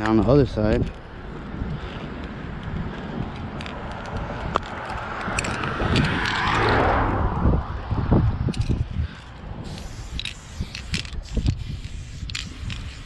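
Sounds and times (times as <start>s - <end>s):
car passing: 1.1s - 9.7s.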